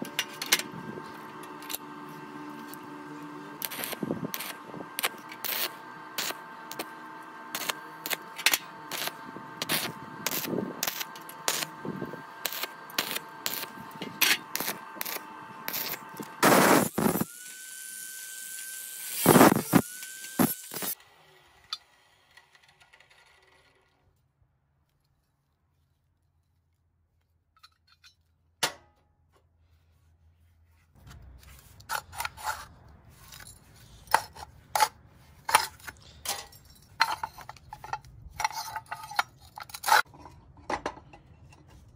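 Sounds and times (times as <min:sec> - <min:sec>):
steady high whine: 0:00.0 - 0:21.0
welding arc crackling: 0:01.3 - 0:21.0.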